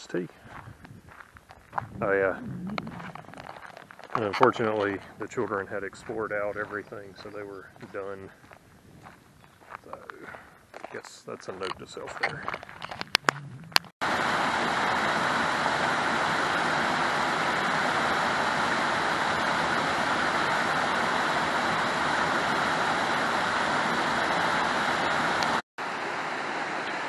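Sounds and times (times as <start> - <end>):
waterfall rushing: 14.0 - 27.0.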